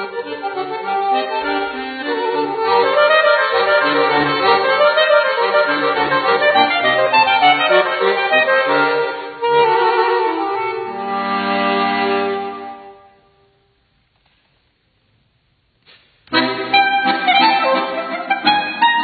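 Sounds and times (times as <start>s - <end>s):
accordion playing chords: 0.0s - 13.5s, 16.3s - 19.0s.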